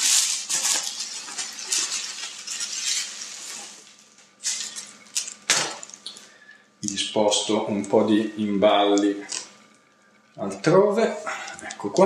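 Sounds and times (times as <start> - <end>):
plastic wrap and cardboard rustling: 0.0 - 5.9.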